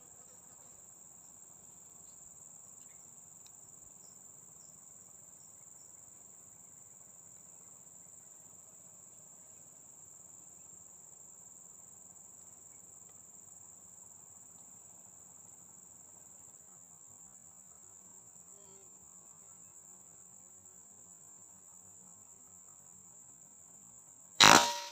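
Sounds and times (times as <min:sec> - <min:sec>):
insects shrilling drone: 0:24.4 - 0:24.9.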